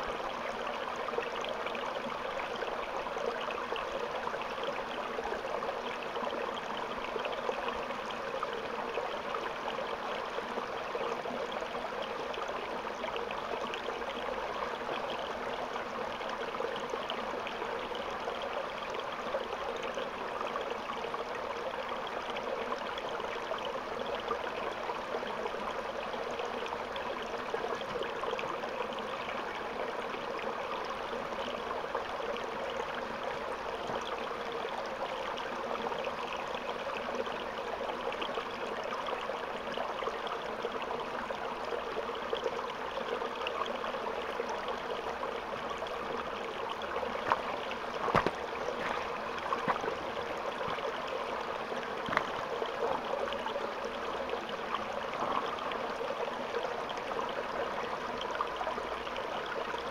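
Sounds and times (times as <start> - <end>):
water running over rocks: 22.3 - 59.9.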